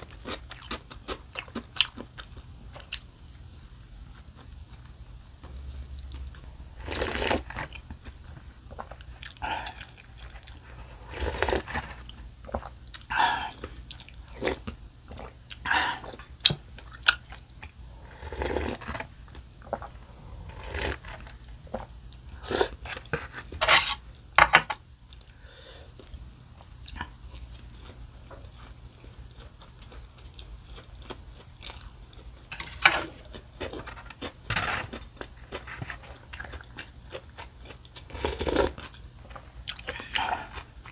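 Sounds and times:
person chewing food: 0.0s - 24.0s, 25.1s - 40.9s.

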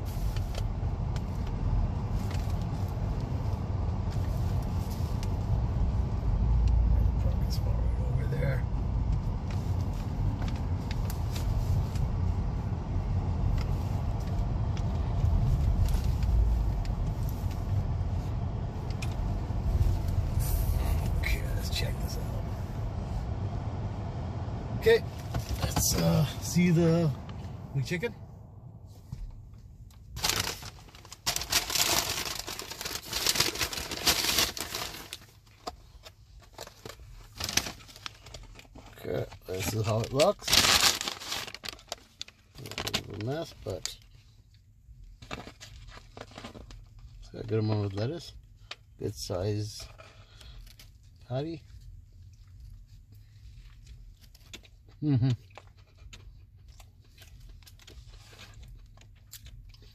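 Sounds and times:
car driving rumble from inside: 0.0s - 59.9s
paper bag crinkling and rustling: 30.1s - 35.8s, 36.4s - 44.0s, 45.2s - 47.1s.

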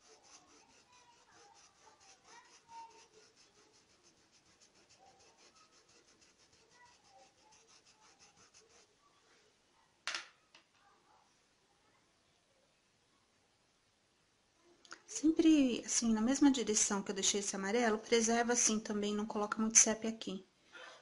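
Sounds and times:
paintbrush scrubbing fabric: 0.0s - 9.1s.

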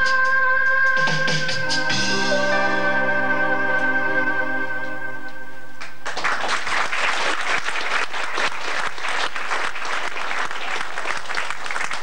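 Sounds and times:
held musical chord: 1.6s - 5.8s
audience applauding: 5.8s - 12.0s.

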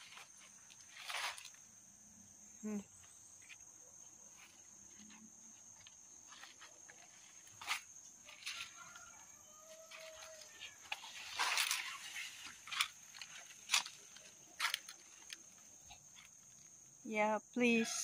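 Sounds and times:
rustles and clicks: 0.0s - 1.6s, 9.9s - 16.7s
insects droning: 0.0s - 18.0s.

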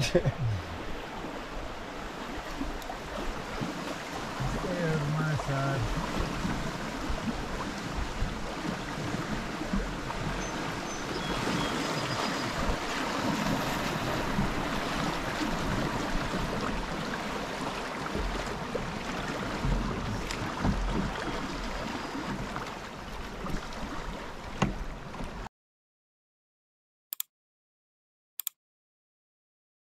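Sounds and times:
river water rushing and splashing: 0.0s - 25.5s
wind rumbling on microphone: 5.8s - 25.4s.

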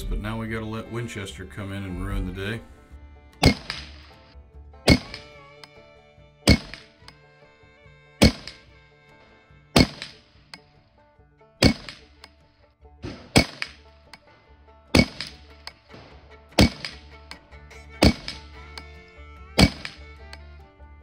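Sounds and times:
background music: 0.0s - 21.0s
rifle shots: 3.4s - 4.1s, 4.9s - 5.3s, 6.5s - 6.9s, 8.2s - 8.6s, 9.8s - 10.2s, 11.6s - 12.3s, 13.0s - 13.9s, 14.9s - 17.1s, 18.0s - 18.5s, 19.6s - 20.1s.

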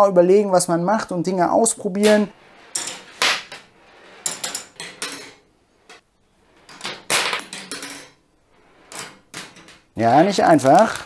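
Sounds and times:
plastic parts clicking and clattering: 8.9s - 11.0s.

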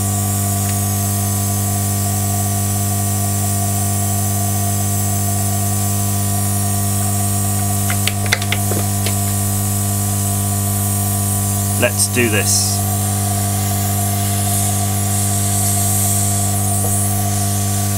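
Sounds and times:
machine hum: 7.6s - 17.9s
blown air hissing: 11.4s - 17.9s.

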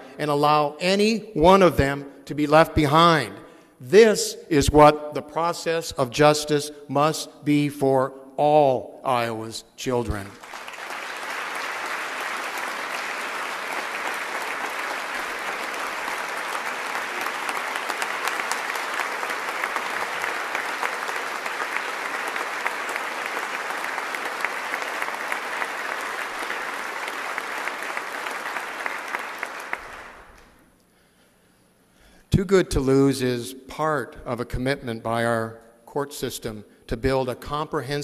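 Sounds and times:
audience clapping: 10.1s - 30.6s.

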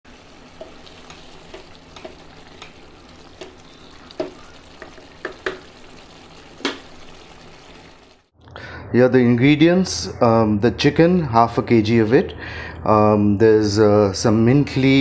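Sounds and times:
curry sizzling in a pan: 0.0s - 8.3s
wooden spatula stirring: 0.1s - 8.1s.

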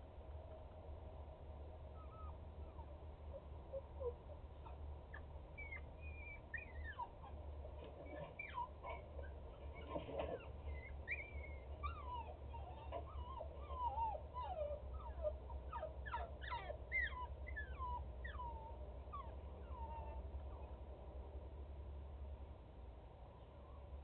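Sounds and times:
dog whimpering: 1.9s - 20.8s.

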